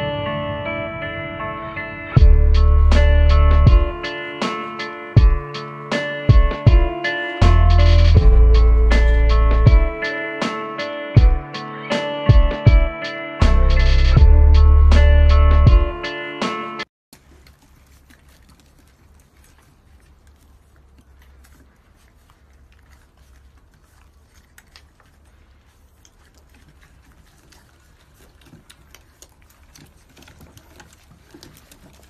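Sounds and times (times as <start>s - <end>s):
low steady hum: 0.0s - 4.2s, 6.6s - 10.1s
puppies scuffling on wooden deck: 28.0s - 32.0s.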